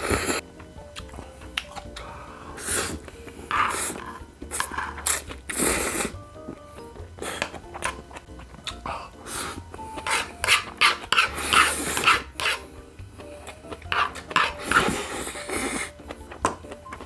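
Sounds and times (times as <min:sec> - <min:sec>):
faint background music: 0:00.0 - 0:17.0
person slurping noodles: 0:02.5 - 0:06.2, 0:08.8 - 0:12.6, 0:13.9 - 0:16.0.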